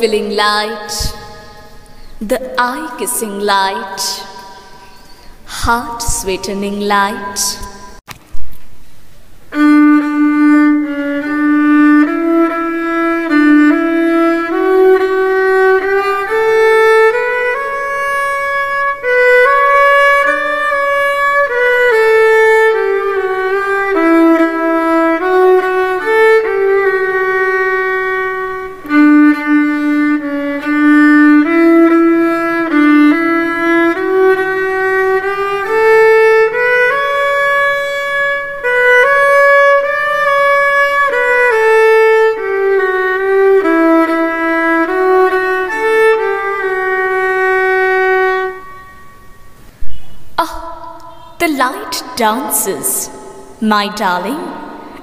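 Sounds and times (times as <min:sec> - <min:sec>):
solo violin melody: 0:09.5 - 0:49.6.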